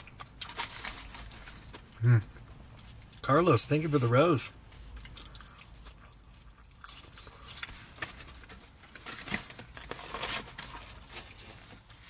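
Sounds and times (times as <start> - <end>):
chewing fried chicken: 0.0 - 3.2, 4.7 - 12.0
paper box rustling: 7.8 - 12.0.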